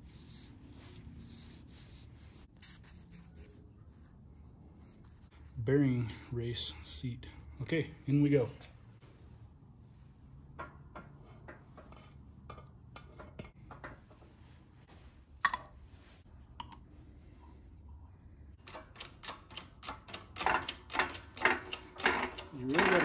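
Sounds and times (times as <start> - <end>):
metal parts clinking and tapping: 15.4 - 15.8, 18.6 - 23.0
rapid metallic clicks: 18.6 - 23.0.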